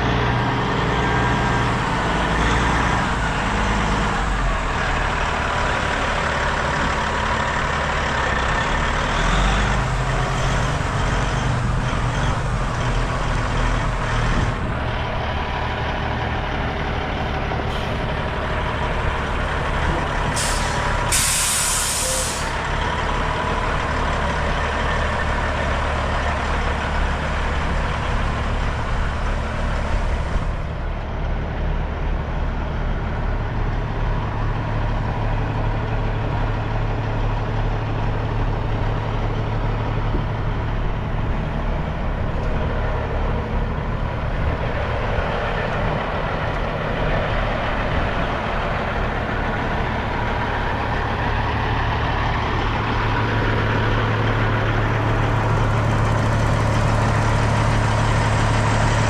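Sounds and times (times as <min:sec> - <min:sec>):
diesel engine idling: 0:00.0 - 0:59.0
air brake hiss: 0:20.4 - 0:22.6.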